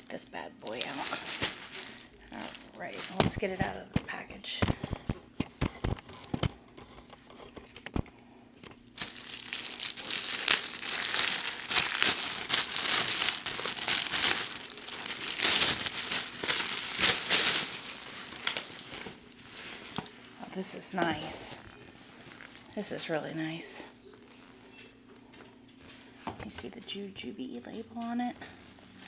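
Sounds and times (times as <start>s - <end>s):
plastic bag crinkling: 0.6s - 6.4s, 9.0s - 24.9s.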